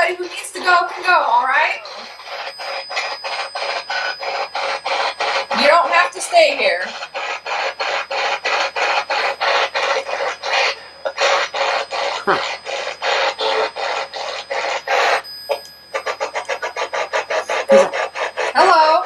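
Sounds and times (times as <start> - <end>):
chopping static bursts: 0.0 - 19.0.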